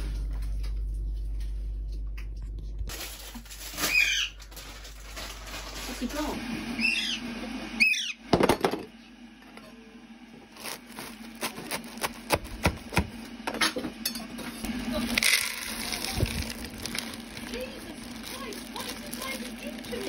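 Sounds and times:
plastic bag rustle: 2.9 - 6.4, 10.5 - 12.4, 14.6 - 20.0.

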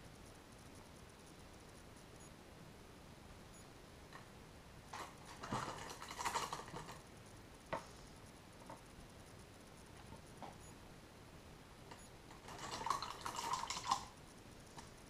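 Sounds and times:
painting materials rustling: 4.9 - 7.1.

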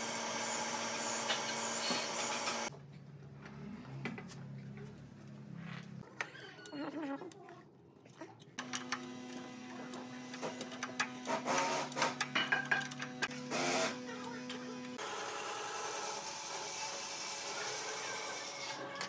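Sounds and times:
small electric motor humming: 0.0 - 2.7, 8.6 - 18.9.

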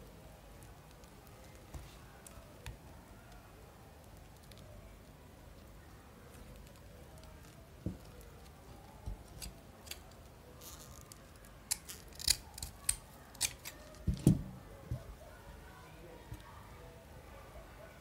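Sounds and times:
scissors snipping: 11.7 - 14.0.

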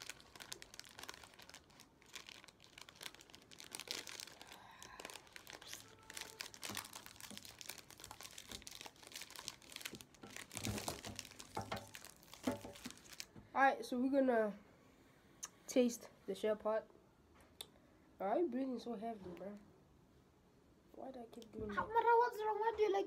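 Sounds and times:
plastic wrapper crinkling: 0.0 - 13.4.

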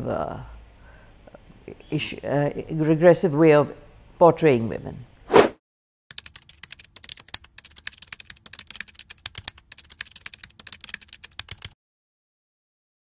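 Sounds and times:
keyboard typing: 6.1 - 11.8.

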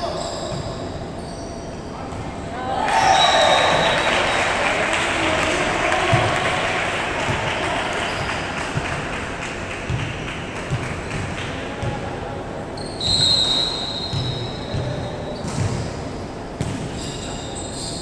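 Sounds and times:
referee's whistle: 3.0 - 4.6, 12.8 - 15.4.

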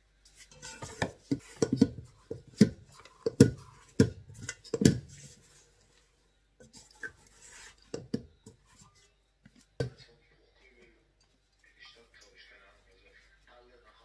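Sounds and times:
hands folding dough: 0.0 - 11.8
dough thudding in a metal bowl: 0.4 - 5.3.

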